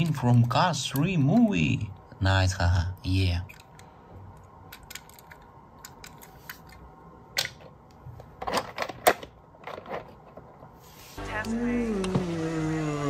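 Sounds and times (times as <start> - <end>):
toy cars clicking and clattering: 4.7 - 6.8.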